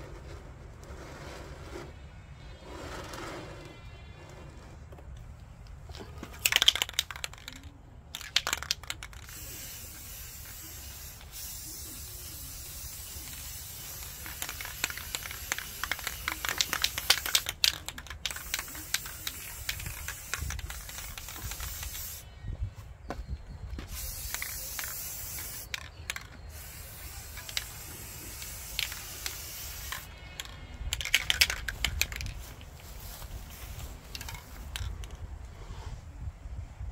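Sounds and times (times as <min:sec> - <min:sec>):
spray paint can hissing: 0:06.4 - 0:22.3, 0:23.8 - 0:35.2.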